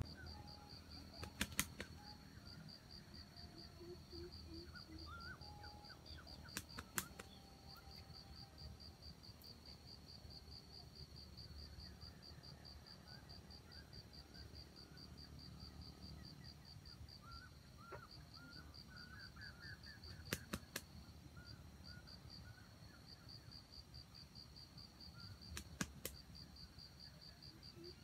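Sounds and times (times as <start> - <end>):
faint bird chirps: 0.0 - 28.0
insect chirping: 0.0 - 28.0
rooster wings clapping: 1.2 - 2.0, 6.6 - 7.3, 20.2 - 20.8, 25.6 - 26.2.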